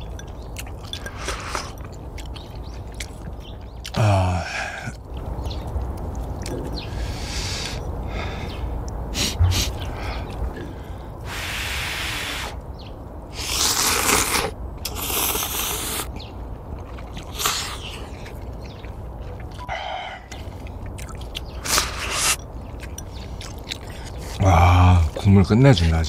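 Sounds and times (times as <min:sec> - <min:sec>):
person sipping hot broth: 0:00.3 - 0:02.0, 0:19.4 - 0:25.1
person slurping noodles: 0:13.4 - 0:16.1.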